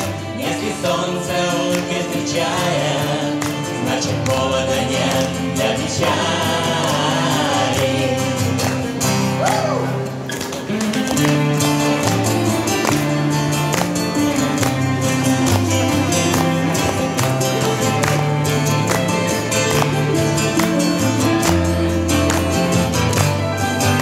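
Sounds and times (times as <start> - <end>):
voices singing together: 0.0 - 10.0
strummed acoustic guitar: 0.0 - 24.0.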